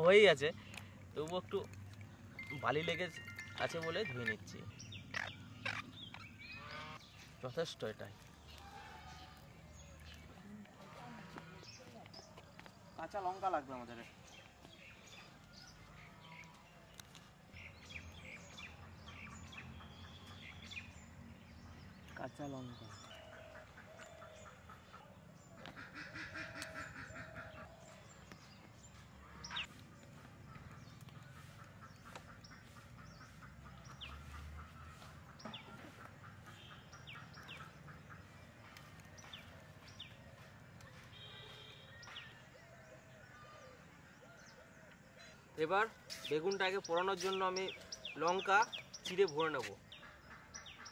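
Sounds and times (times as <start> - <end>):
bird chirping: 0.0 - 50.9
small bird chirps: 0.6 - 10.6.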